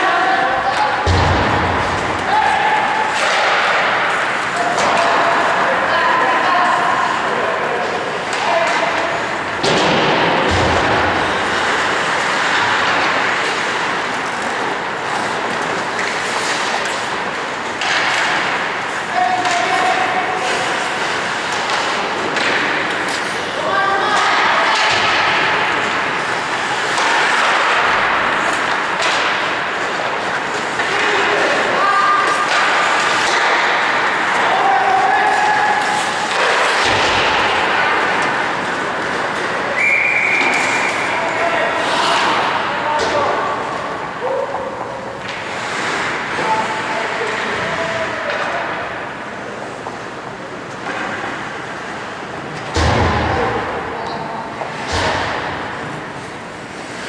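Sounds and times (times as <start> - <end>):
loud bang echoing in rink: 0.0 - 50.2, 52.6 - 57.0
hockey sticks and puck knocking: 0.7 - 5.7, 7.8 - 41.1
skate blades scraping ice: 11.1 - 24.2, 25.2 - 42.6, 45.1 - 47.9.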